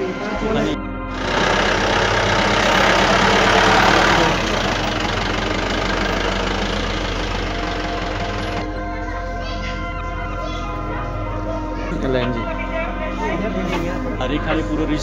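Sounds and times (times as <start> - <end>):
rushing noise: 1.1 - 8.7
engine idling: 1.1 - 10.1.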